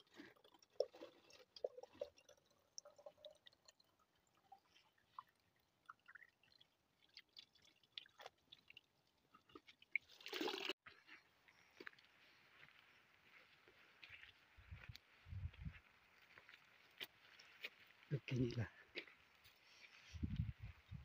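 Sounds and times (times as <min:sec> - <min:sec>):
water trickling into bottle: 0:00.0 - 0:10.8.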